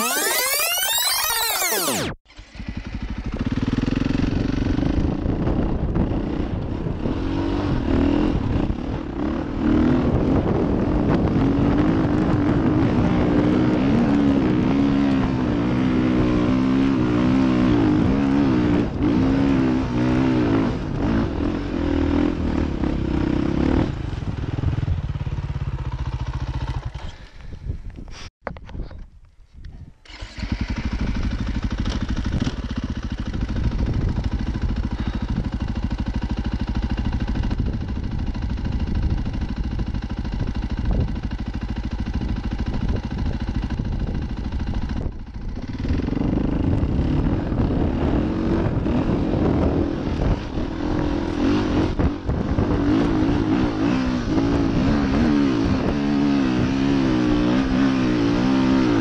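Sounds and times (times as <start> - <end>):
dirt bike engine under load: 23.7 - 29.2, 30.0 - 59.0.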